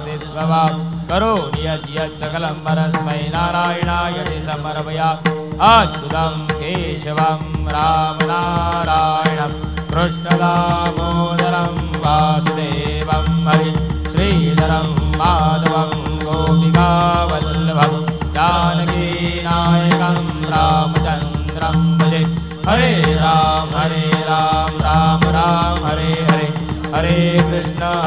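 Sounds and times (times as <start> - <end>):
drum beat: 0.0 - 28.0
person singing devotional song: 0.0 - 28.0
steady drone: 9.2 - 28.0.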